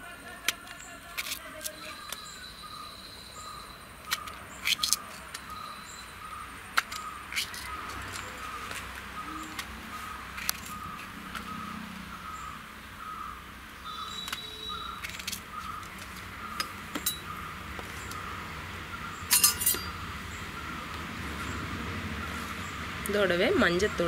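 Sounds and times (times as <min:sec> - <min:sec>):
kitchen utensils clinking: 0:16.6 - 0:17.3, 0:19.3 - 0:20.0.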